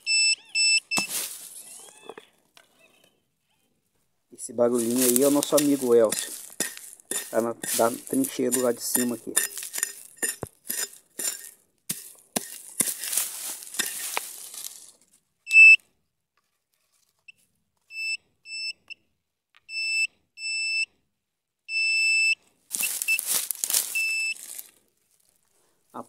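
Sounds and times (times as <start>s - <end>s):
metal detector beeping: 0.0s - 2.1s, 4.8s - 10.4s, 15.5s - 15.8s, 17.9s - 18.9s, 21.7s - 24.4s
scraping in soil and leaves: 0.9s - 2.0s, 4.6s - 15.2s, 22.7s - 25.6s.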